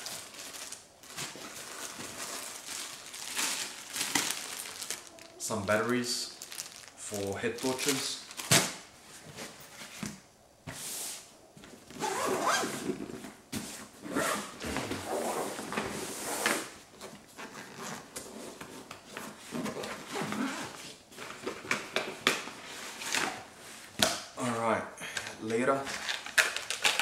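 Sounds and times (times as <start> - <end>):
nylon bag rustling: 0.0 - 8.8.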